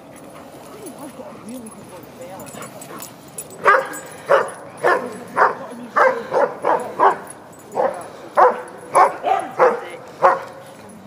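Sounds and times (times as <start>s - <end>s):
dog barking: 3.6s - 10.6s.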